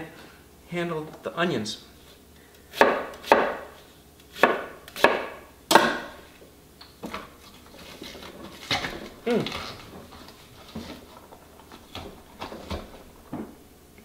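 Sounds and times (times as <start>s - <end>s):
knife chopping on wooden board: 2.7s - 6.2s.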